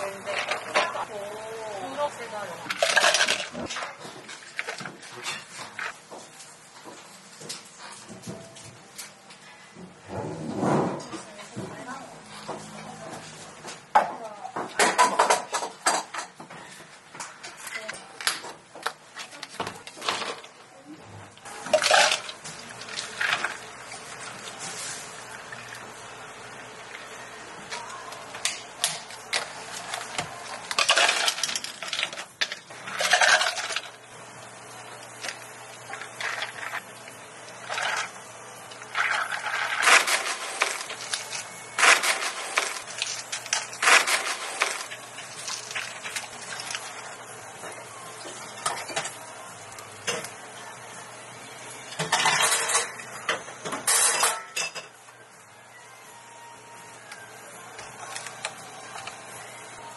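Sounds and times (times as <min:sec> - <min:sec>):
ice cubes clattering into cups: 0:02.7 - 0:05.4, 0:21.6 - 0:24.3, 0:28.4 - 0:34.0, 0:35.2 - 0:36.8, 0:37.6 - 0:38.2, 0:38.8 - 0:47.1, 0:52.0 - 0:53.0.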